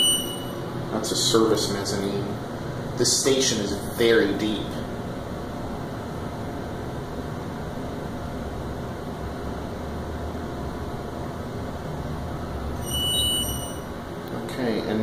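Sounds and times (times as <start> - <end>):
elevator humming: 0.0 - 1.0, 11.3 - 14.2.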